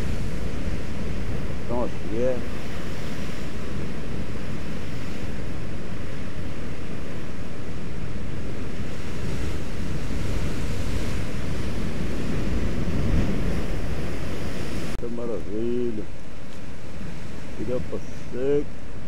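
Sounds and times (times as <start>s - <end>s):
surf breaking on rocks: 0.0s - 15.0s.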